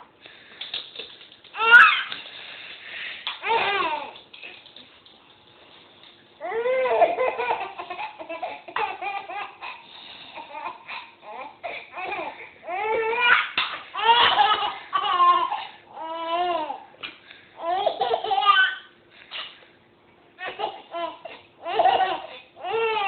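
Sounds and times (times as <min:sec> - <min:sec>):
baby giggling: 0:06.8 - 0:11.0, 0:17.6 - 0:18.8.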